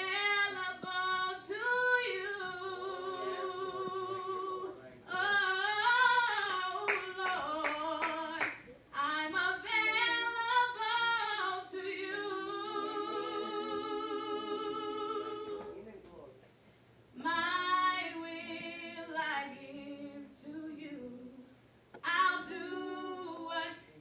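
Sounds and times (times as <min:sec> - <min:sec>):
woman singing into microphone: 0:00.0 - 0:15.7, 0:17.2 - 0:23.8
sharp claps: 0:06.4 - 0:08.7.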